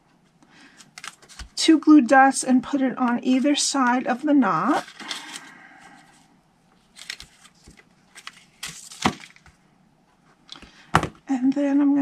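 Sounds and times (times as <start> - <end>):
plastic backing strip crackling: 6.7 - 9.5.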